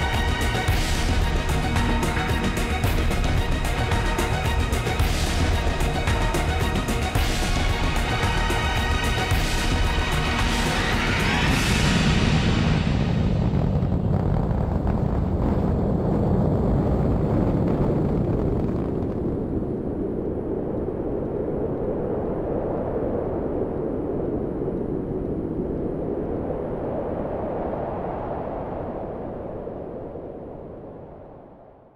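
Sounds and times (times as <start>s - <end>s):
rocket engines rumbling: 0.0s - 27.5s.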